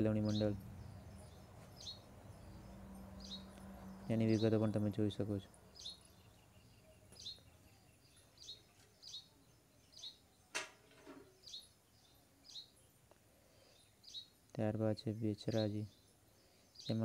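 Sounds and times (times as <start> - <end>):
low steady hum: 0.0 - 8.4
small bird chirping: 0.0 - 17.0.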